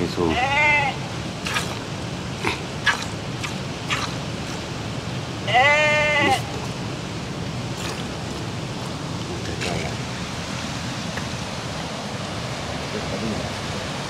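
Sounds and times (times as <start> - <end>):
goat bleating: 0.2 - 1.1, 5.4 - 6.6.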